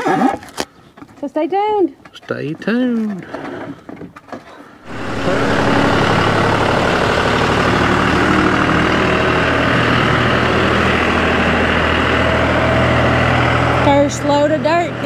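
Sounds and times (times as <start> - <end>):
tractor diesel engine running: 4.8 - 15.0.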